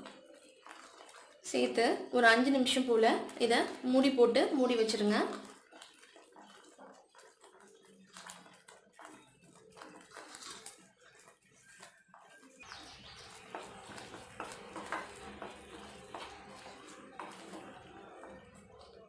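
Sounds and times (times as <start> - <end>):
spoon stirring thick gravy: 0.0 - 19.0.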